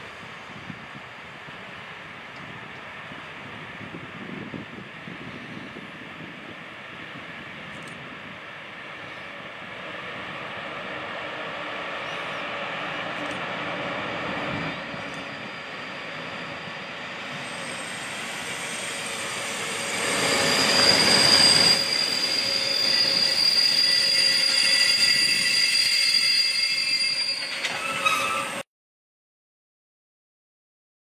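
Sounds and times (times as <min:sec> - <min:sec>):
train rolling past: 0:00.0 - 0:28.6
high-pitched wheel squeal: 0:14.2 - 0:28.6.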